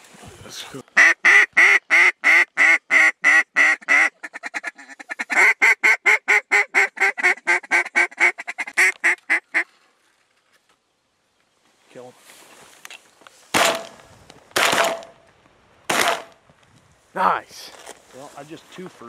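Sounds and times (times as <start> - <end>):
duck call quacks: 1.0 - 9.6.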